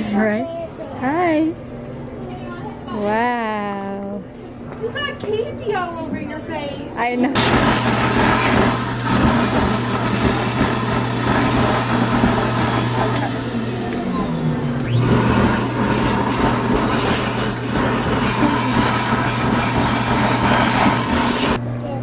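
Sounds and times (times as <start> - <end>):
stuffing machine blower hum: 7.0 - 22.0.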